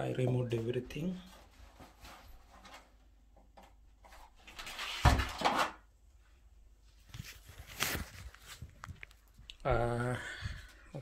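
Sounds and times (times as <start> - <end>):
rustling handling noise: 0.5 - 5.7, 6.8 - 9.6.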